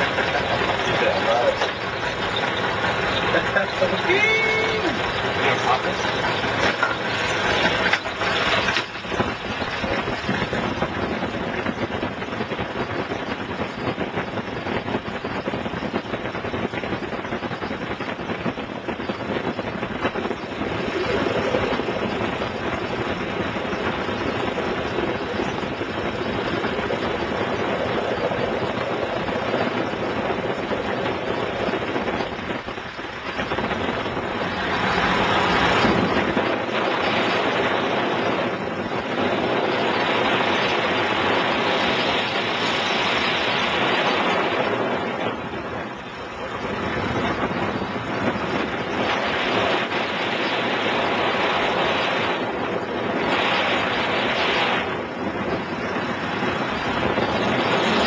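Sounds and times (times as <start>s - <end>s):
propeller plane engine running: 0.0s - 58.0s.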